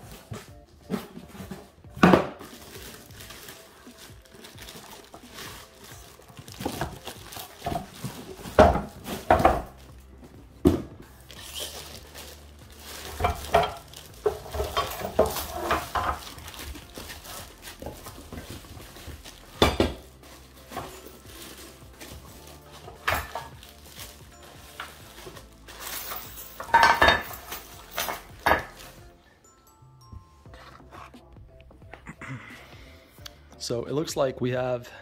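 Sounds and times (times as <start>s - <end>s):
plastic wrapping crinkling: 2.4s - 10.2s, 11.0s - 29.1s.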